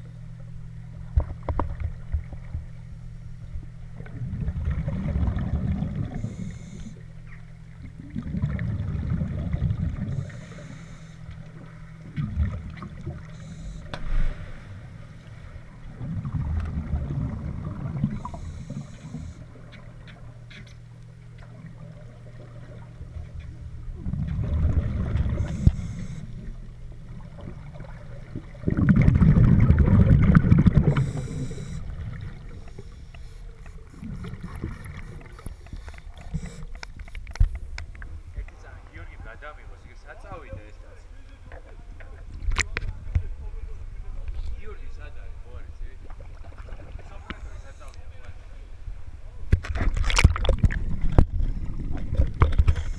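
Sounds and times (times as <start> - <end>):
faint low hum: 0.0 - 52.9
scuba regulator bubbles rushing: 3.9 - 7.1, 7.8 - 20.0, 21.4 - 37.8, 49.5 - 52.9.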